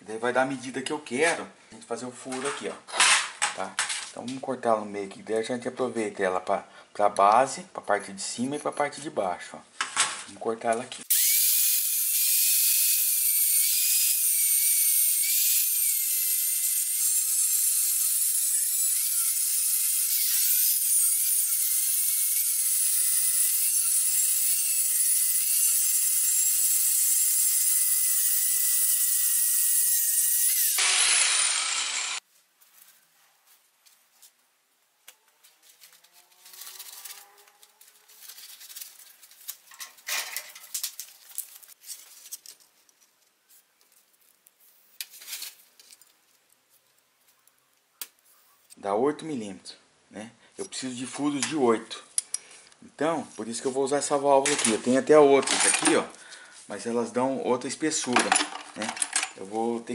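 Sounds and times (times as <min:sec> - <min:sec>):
angle grinder cutting steel: 0:11.1 - 0:32.2.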